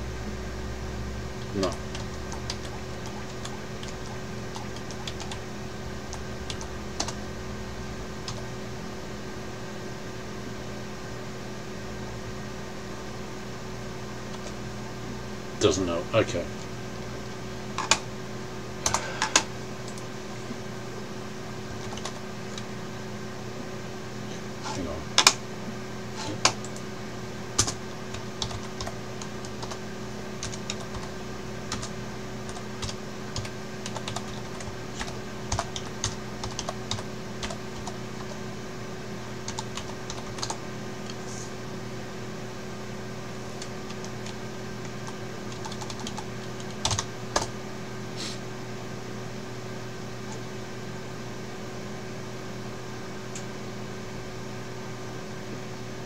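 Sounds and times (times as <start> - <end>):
steady low hum: 0.0 - 56.0
computer keyboard typing: 1.4 - 7.2, 8.2 - 8.5, 17.8 - 18.0, 21.7 - 22.7, 27.6 - 29.8, 30.4 - 38.3, 39.4 - 40.6, 43.6 - 47.5.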